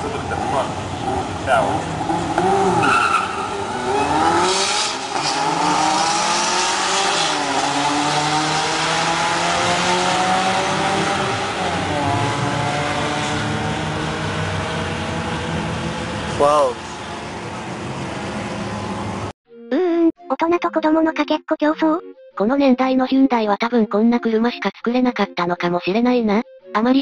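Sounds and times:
cars accelerating hard: 0.0 - 19.3.

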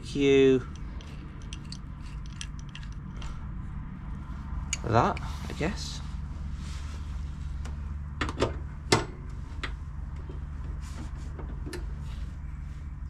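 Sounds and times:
steady low hum: 0.0 - 13.0
metal tools clinking on steel: 0.5 - 3.4, 4.7 - 5.6.

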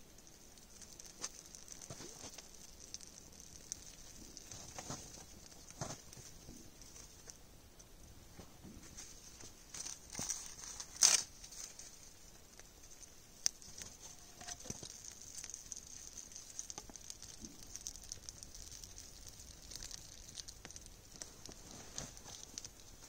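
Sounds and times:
campfire crackling and popping: 0.0 - 8.0, 9.4 - 23.0.

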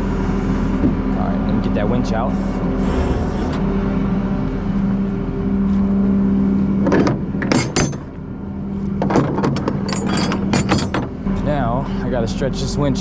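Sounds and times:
metallic clanks of hook and chain: 7.5 - 8.1, 9.0 - 11.1.

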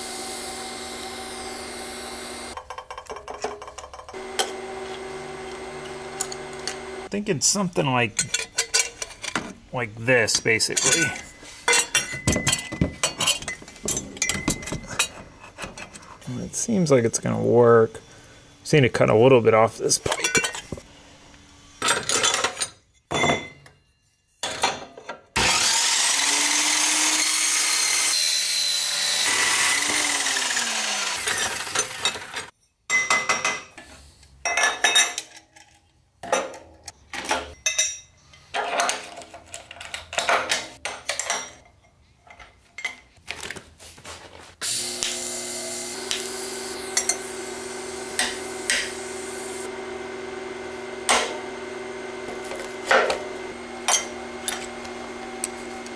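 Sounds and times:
saw blade spinning down: 0.0 - 2.6, 25.4 - 32.5, 44.6 - 51.8
chop saw cutting metal tube: 4.1 - 7.1, 25.4 - 32.5, 44.6 - 55.9
metal tube pieces clinking: 8.1 - 9.5, 10.3 - 16.1.

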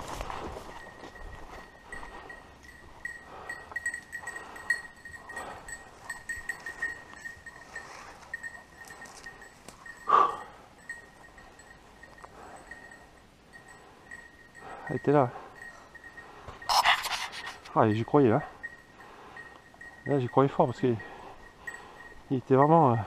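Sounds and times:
footsteps rustling through bracken: 0.0 - 10.0, 15.5 - 17.8
dog collar bell jingling: 0.6 - 23.0.

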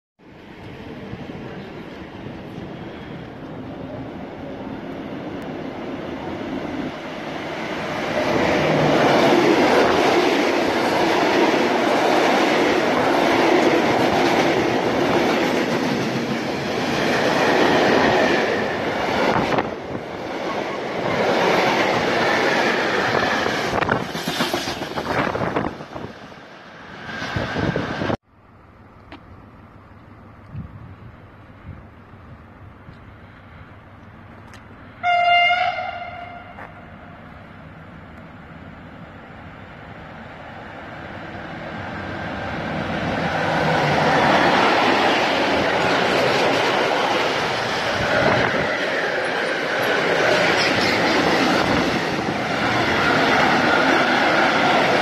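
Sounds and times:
train wheels rumbling on rails: 0.4 - 28.2, 41.0 - 55.0.

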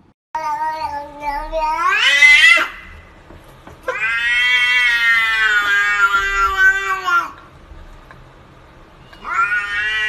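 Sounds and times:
cat yowling: 0.4 - 3.0, 3.9 - 7.4, 9.2 - 10.0.

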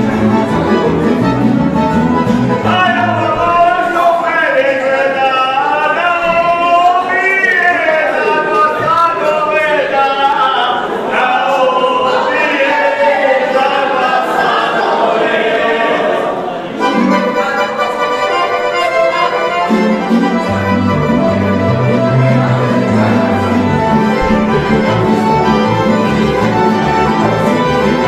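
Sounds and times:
folk ensemble singing in chorus: 2.6 - 17.7, 21.7 - 28.0
instrumental music with low bass line: 20.3 - 28.0.

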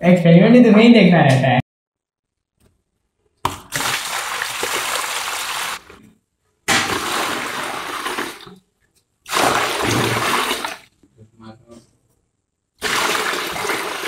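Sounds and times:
water pouring into a tub: 3.6 - 5.9, 6.7 - 8.6, 9.3 - 10.9, 12.8 - 14.0.

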